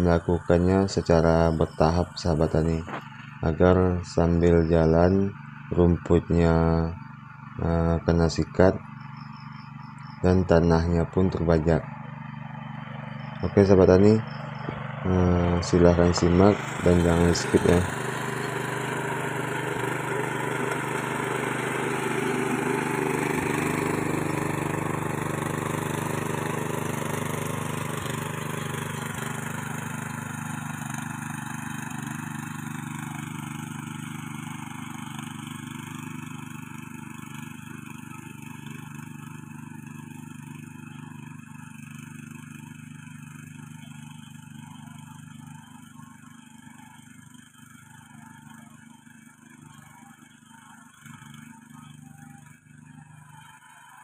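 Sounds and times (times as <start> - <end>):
tiller engine running: 0.0 - 54.0
tines churning dry soil: 14.8 - 40.8.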